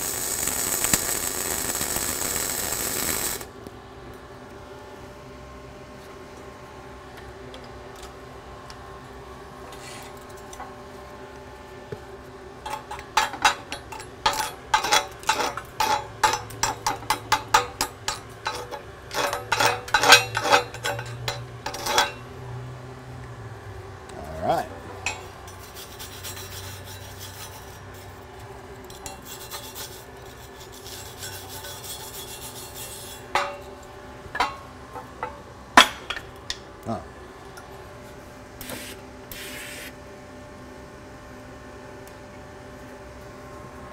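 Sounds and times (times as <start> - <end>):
scraping slag off steel weld: 0.0 - 3.5, 12.7 - 22.3, 25.0 - 36.1.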